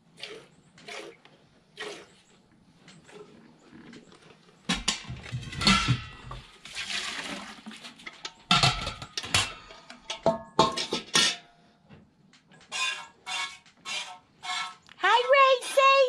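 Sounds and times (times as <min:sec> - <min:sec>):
metal pail clanking: 0:04.7 - 0:11.5.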